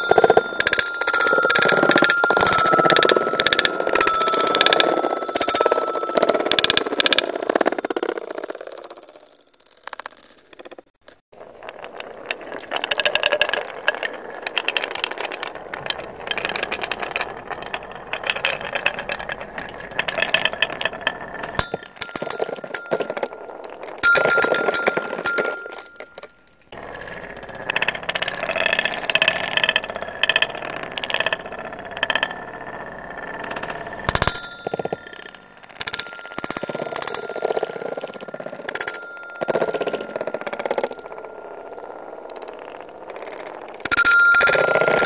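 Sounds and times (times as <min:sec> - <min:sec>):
metal sound bars ringing: 0:00.0 - 0:07.9, 0:21.6 - 0:26.4
marbles rolling on wooden track: 0:00.0 - 0:45.0.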